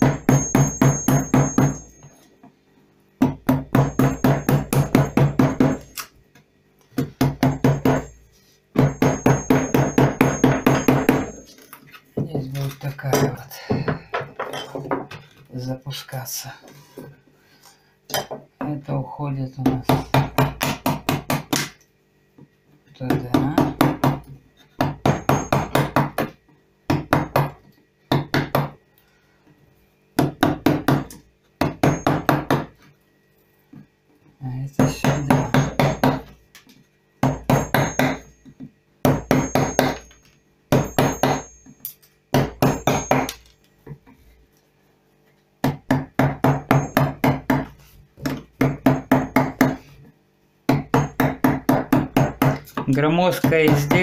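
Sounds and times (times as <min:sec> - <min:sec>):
mallet tapping a chisel into wood: 0:00.0 - 0:01.9, 0:03.2 - 0:05.8, 0:07.0 - 0:08.2, 0:08.8 - 0:11.4, 0:19.6 - 0:21.8, 0:23.1 - 0:28.8, 0:30.2 - 0:32.7, 0:37.2 - 0:38.3, 0:39.0 - 0:41.5, 0:45.6 - 0:49.8, 0:50.7 - 0:54.0.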